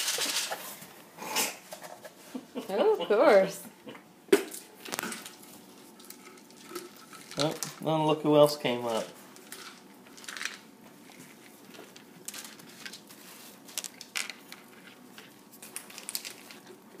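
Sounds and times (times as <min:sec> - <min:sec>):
cats chewing dry treats: 0:09.4 - 0:17.0.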